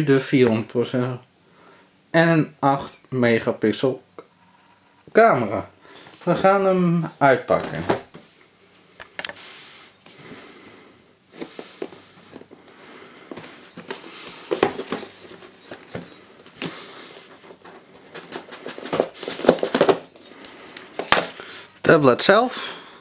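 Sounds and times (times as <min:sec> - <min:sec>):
crinkling: 0:11.4 - 0:21.5.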